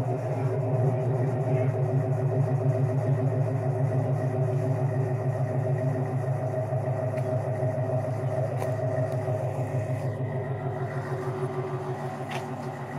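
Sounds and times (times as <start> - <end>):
car engine idling: 0.0 - 12.9.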